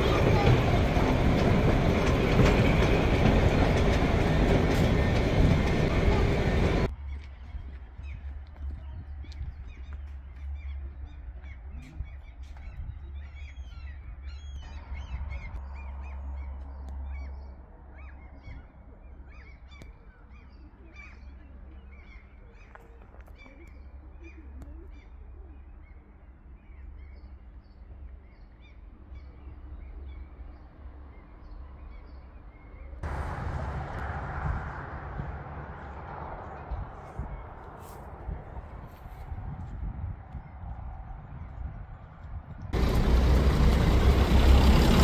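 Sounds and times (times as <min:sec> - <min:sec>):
low wind rumble: 0:00.0 - 0:19.7, 0:28.2 - 0:45.0
loud rush of wind: 0:33.0 - 0:45.0.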